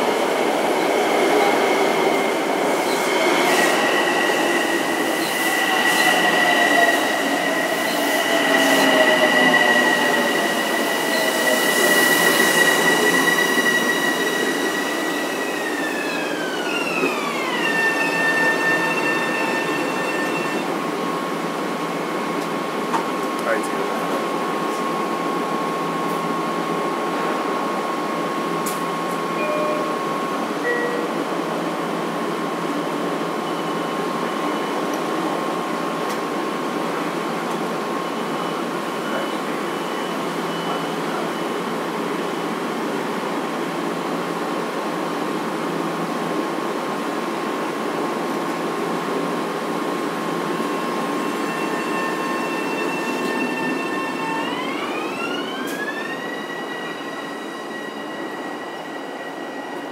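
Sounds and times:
train inverter whine rising: 0.0 - 23.4
constant train whine: 0.0 - 59.9.

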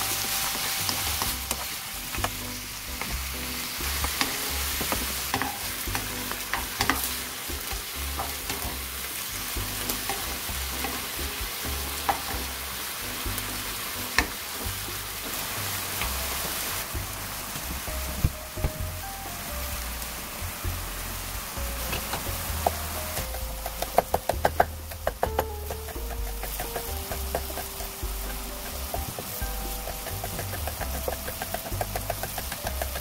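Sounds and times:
food sizzling in oil: 0.0 - 33.0
utensil clicking against pan: 21.9 - 33.0.

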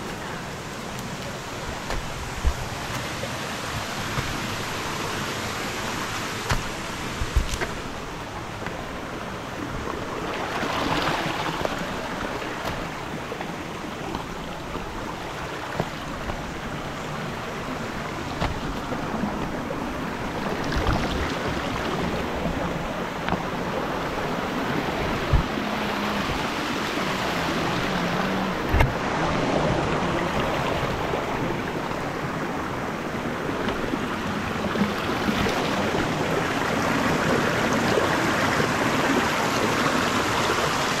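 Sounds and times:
stream running over rocks: 0.0 - 41.0
dull knocks: 1.6 - 3.2, 3.8 - 8.9, 17.8 - 19.6, 25.1 - 25.6.

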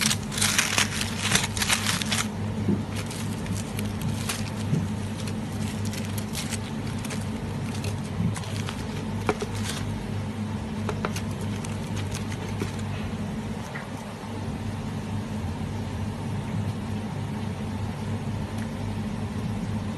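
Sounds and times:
knife cutting crinkly foil: 0.0 - 10.0, 10.8 - 13.0
steady low hum: 0.0 - 19.9.

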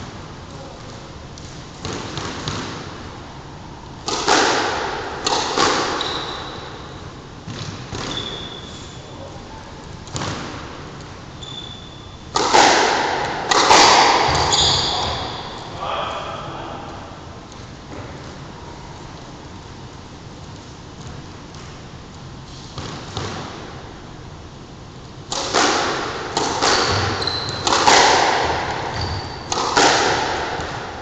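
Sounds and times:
squash ball hits: 1.8 - 3.1, 4.0 - 6.8, 7.4 - 8.7, 10.1 - 10.8, 11.7 - 15.6, 22.7 - 23.8, 25.3 - 31.0
sneaker squeaks: 5.9 - 6.9, 7.5 - 9.3, 11.3 - 12.3, 14.2 - 15.7, 26.6 - 29.6.

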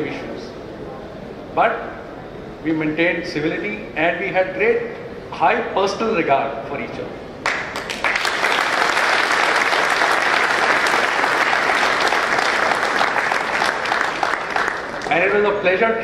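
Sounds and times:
audience applauding: 7.4 - 15.2.

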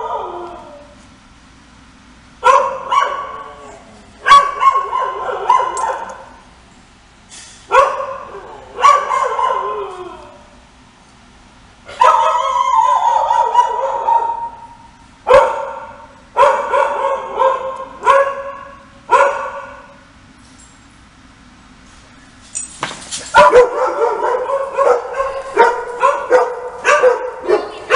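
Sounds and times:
dogs barking: 2.4 - 6.4, 7.7 - 10.1, 11.9 - 20.0, 23.3 - 27.9.

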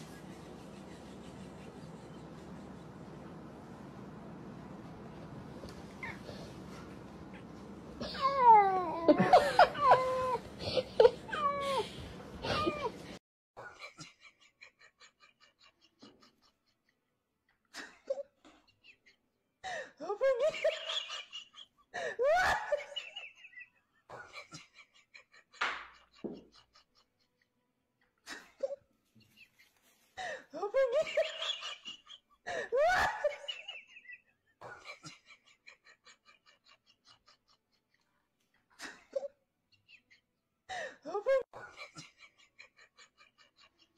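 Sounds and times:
person laughing: 8.0 - 13.0, 30.2 - 33.8, 40.8 - 43.9.

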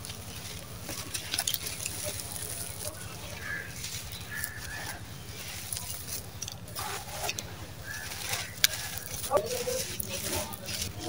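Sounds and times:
grit crumbling and pattering: 0.0 - 11.0.

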